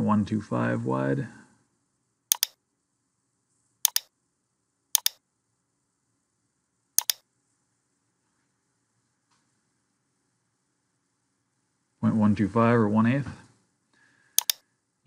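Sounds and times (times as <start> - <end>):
computer mouse button clicking: 2.3 - 2.6, 3.9 - 4.1, 5.0 - 5.2, 7.0 - 7.2, 14.4 - 14.6.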